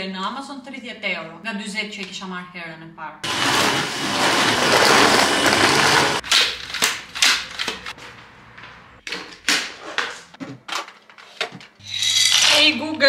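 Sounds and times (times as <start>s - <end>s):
kitchen blender running: 3.2s - 6.2s.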